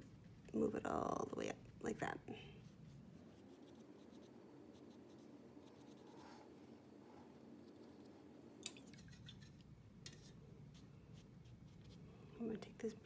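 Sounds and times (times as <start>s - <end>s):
paintbrush swishing on paper: 2.5s - 8.2s, 10.2s - 12.2s.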